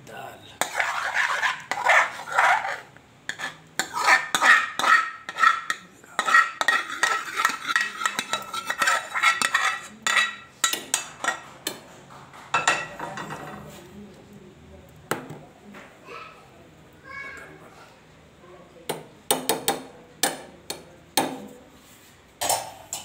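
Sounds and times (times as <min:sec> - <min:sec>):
metal ladle scraping a pan: 0:00.6 - 0:11.4.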